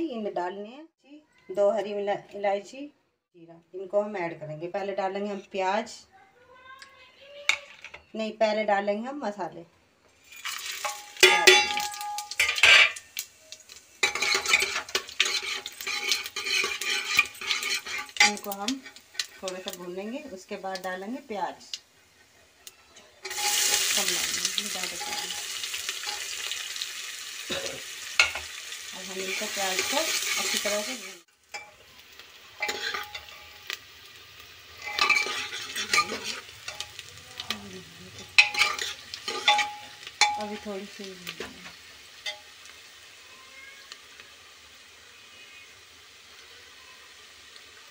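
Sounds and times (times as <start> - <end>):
spices sizzling in hot oil: 6.8 - 9.3, 10.0 - 47.9
metal clinking against pot: 10.4 - 13.0, 14.0 - 18.8, 23.2 - 23.8, 34.8 - 37.5, 38.2 - 40.7.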